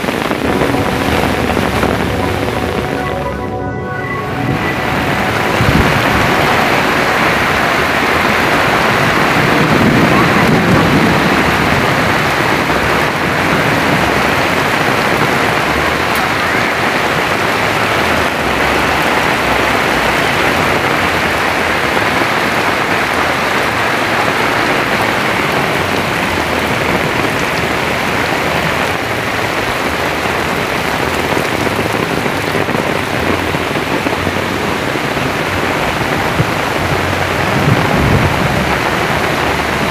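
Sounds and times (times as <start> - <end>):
low rumble: 0.0 - 16.4
torrential rain: 0.0 - 39.9.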